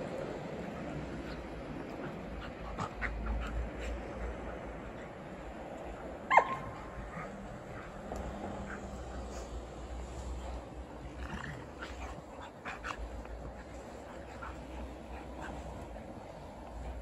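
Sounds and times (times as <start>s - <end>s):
dog yelping: 6.3s - 7.3s
small dogs yipping: 6.3s - 8.0s.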